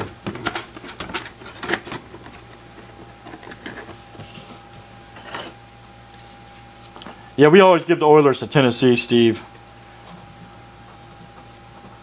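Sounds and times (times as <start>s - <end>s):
clicks and rustles of handling: 0.0s - 4.6s.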